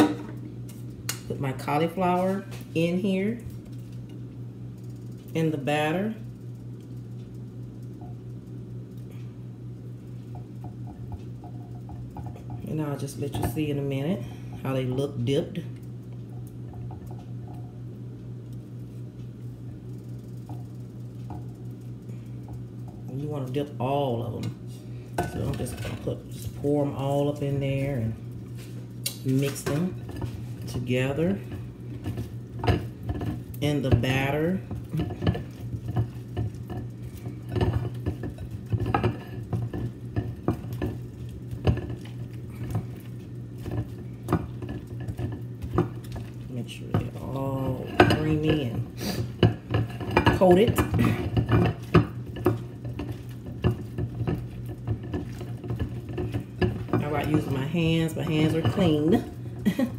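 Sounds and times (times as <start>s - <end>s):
steady low hum: 0.0s - 59.9s
stirring batter in a bowl: 0.6s - 59.9s
wet squishes of batter: 34.5s - 59.6s.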